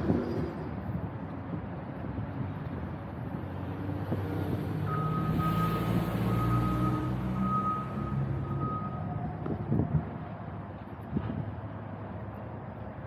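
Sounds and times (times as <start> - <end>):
large vehicle engine: 0.0 - 13.0
reversing alarm beeping: 4.8 - 9.3.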